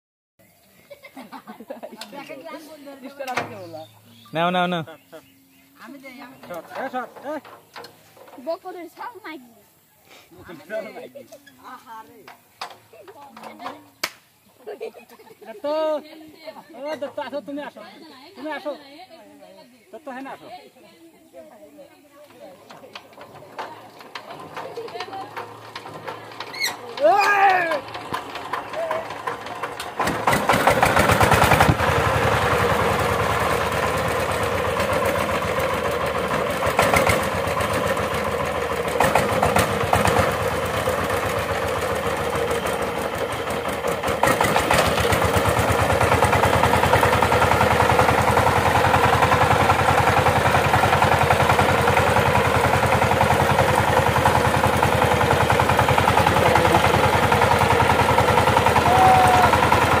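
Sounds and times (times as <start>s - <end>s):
diesel engine chugging: 23.0s - 60.0s.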